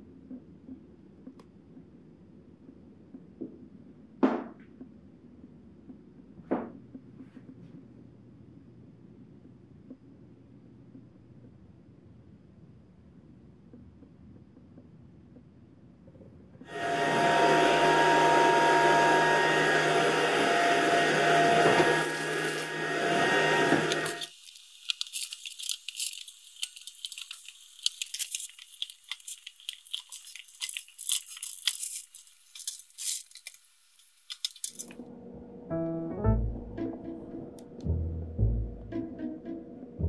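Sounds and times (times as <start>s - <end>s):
machine whirring with hum: 16.7s - 24.3s.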